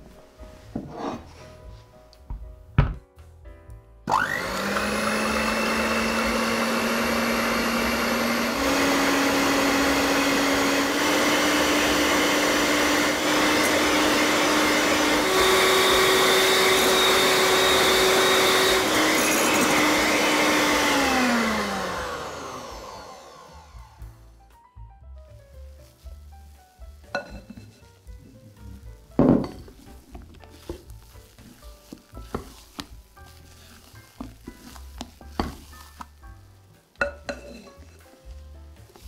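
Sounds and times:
electric hand mixer whirring: 4.1s - 24.3s.

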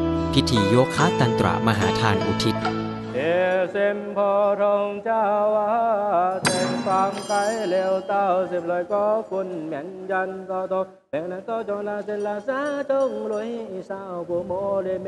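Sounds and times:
small bell ringing: 6.4s - 9.8s, 11.7s - 14.0s.

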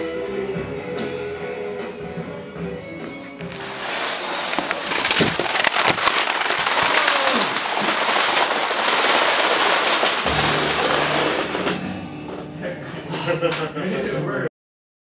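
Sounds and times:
plastic cases toppling clatter: 3.5s - 11.9s.

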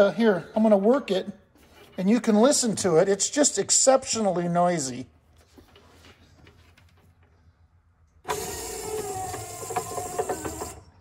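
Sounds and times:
electric window motor running: 8.3s - 11.0s.

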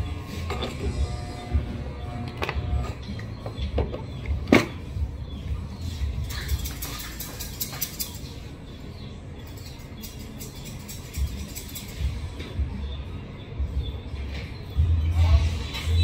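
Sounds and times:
low pulsing beat: 0.0s - 6.3s.

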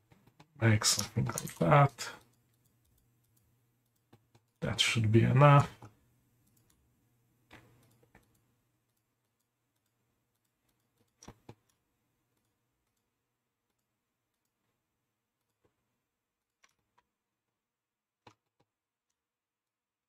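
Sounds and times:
mouse and keyboard clicks: 7.5s - 11.8s.

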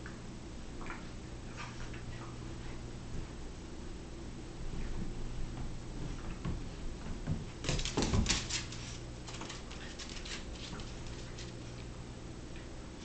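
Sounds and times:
puppies scuffling and thumping: 4.6s - 12.0s.

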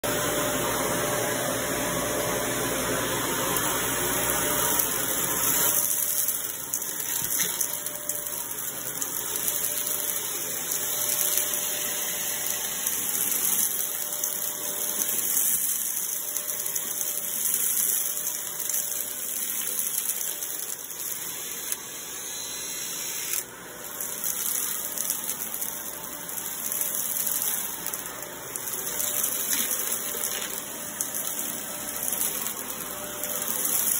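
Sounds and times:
vacuum cleaner running on carpet: 0.0s - 33.9s
glitter and beads rattling in nozzle: 23.8s - 33.9s.

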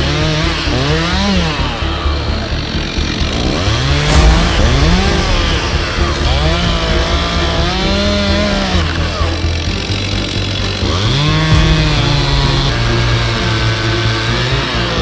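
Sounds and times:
chainsaw revving while cutting: 0.0s - 15.0s
sharp knock: 4.0s - 9.9s.

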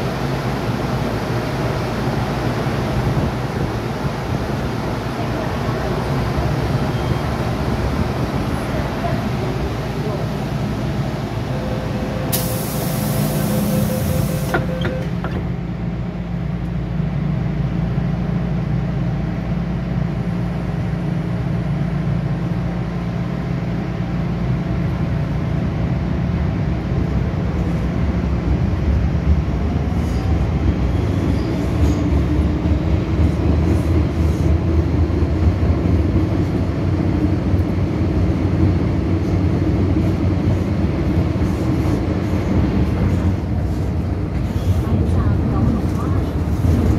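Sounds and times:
metro car hum: 0.0s - 46.9s
train traction noise with whine: 0.0s - 46.9s
burst of hiss: 12.3s - 14.6s.

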